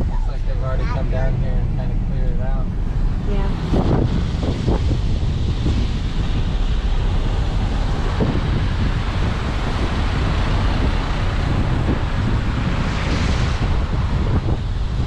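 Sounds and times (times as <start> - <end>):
tyre and road noise: 0.0 - 15.0
wind buffeting microphone: 0.0 - 15.0.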